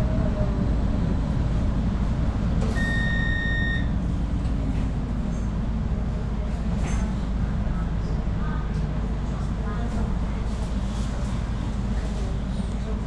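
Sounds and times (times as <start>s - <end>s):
low rumble inside tram: 0.0s - 13.0s
electronic beep: 2.8s - 3.9s.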